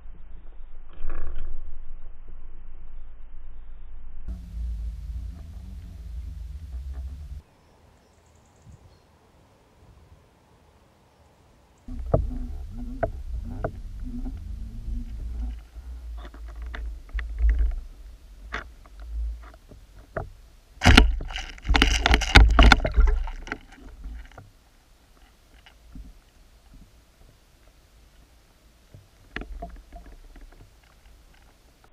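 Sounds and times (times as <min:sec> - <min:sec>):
muffled underwater water rush: 0:04.3 - 0:07.5, 0:11.9 - 0:31.9
sharp clicks and knocks: 0:11.9 - 0:24.5, 0:28.9 - 0:31.6.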